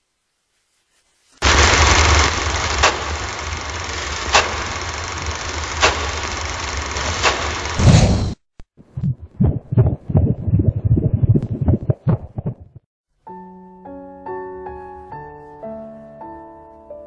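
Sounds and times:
film projector whirring: 0:01.4 - 0:07.8
low rumble: 0:01.4 - 0:08.0, 0:09.0 - 0:12.8.

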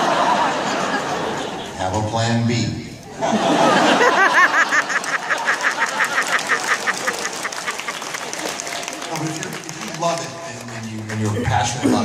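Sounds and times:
audience laughing and clapping: 0:00.0 - 0:01.8, 0:03.0 - 0:12.0
person cackling laugh: 0:03.6 - 0:08.0.

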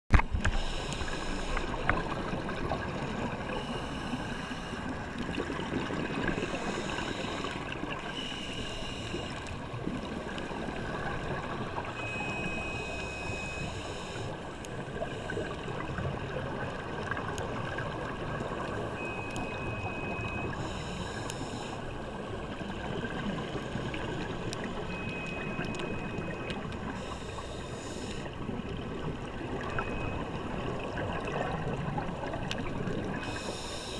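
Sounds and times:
muffled underwater rush: 0:00.1 - 0:33.9
faint high whistle: 0:12.0 - 0:14.1
bubbling hiss of exhaled air: 0:33.0 - 0:33.9.

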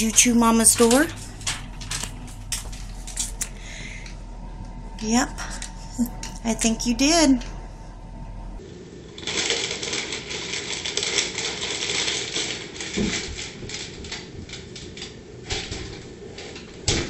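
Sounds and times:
plastic wrapping crinkling: 0:00.0 - 0:04.1, 0:09.0 - 0:16.9.

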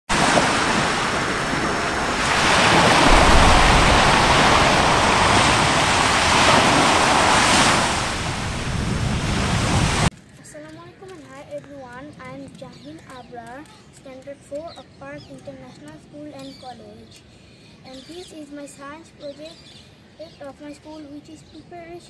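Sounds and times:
deep rumble: 0:00.1 - 0:10.1
volcanic eruption roar: 0:00.1 - 0:10.1.

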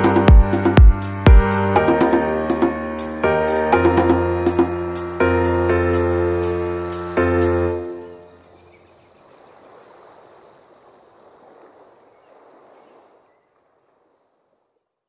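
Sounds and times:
piano song: 0:00.0 - 0:08.4.

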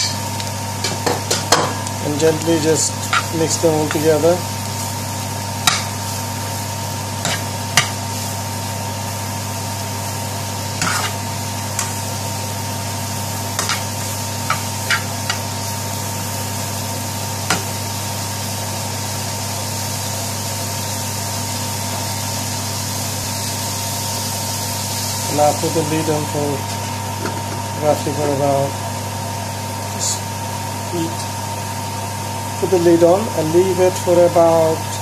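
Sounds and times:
mushrooms sizzling in frying pan: 0:00.0 - 0:35.0.

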